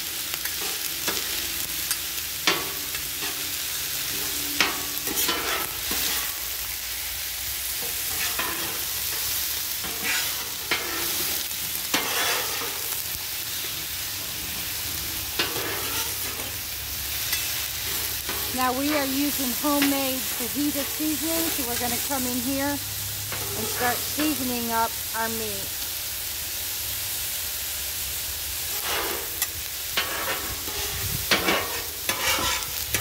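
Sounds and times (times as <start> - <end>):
meat and onions sizzling: 0.0 - 33.0
metal spatulas scraping griddle: 4.1 - 6.4, 7.8 - 12.9, 15.4 - 16.6, 23.3 - 24.0, 28.7 - 33.0.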